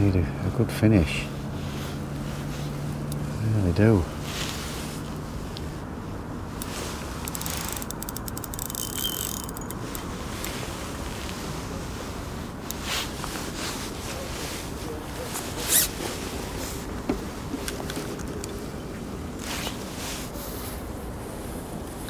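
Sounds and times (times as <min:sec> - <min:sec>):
fishing reel clicks: 0:07.2 - 0:09.8
fishing reel ticking: 0:07.2 - 0:09.9.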